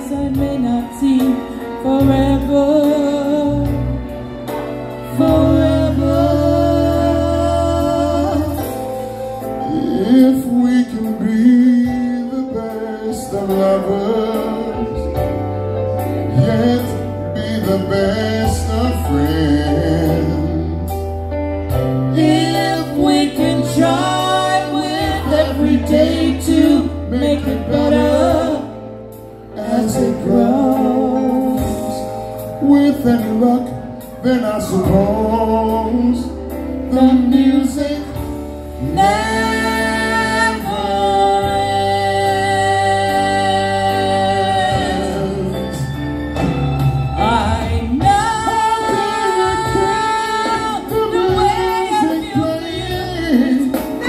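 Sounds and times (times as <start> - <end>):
woman and man singing duet: 0.0 - 15.4, 16.2 - 21.1, 22.1 - 46.1, 47.1 - 54.0
amplified backing music: 0.0 - 54.0.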